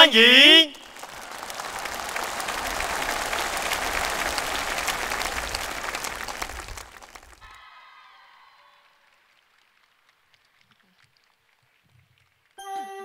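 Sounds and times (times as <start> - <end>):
audience applauding: 0.1 - 12.7.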